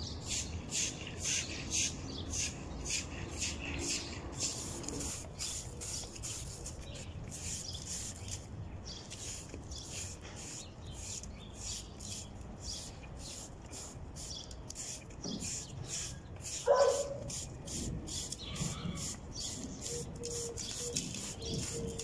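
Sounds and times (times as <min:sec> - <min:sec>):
broom sweeping wet concrete: 0:00.2 - 0:22.0.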